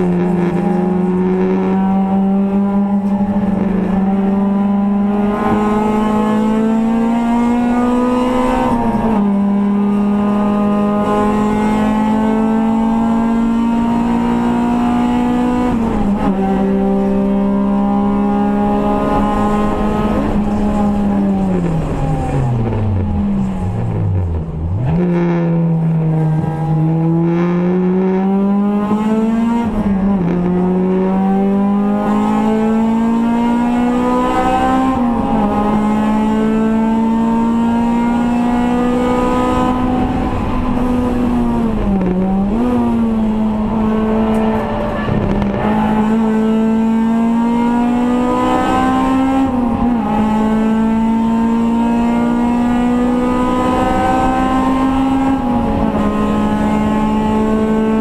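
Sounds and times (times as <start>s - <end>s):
race car engine under load: 0.0s - 58.0s.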